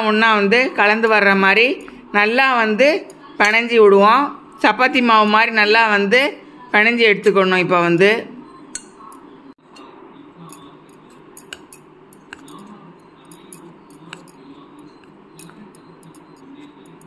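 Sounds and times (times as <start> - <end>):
metal spoon stirring in a bowl: 7.2 - 17.0
spoon clicking against bowl: 8.7 - 17.0.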